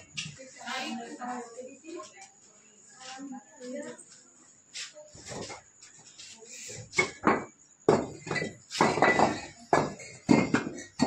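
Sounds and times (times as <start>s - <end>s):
bricks clinking and clacking: 7.0s - 11.0s.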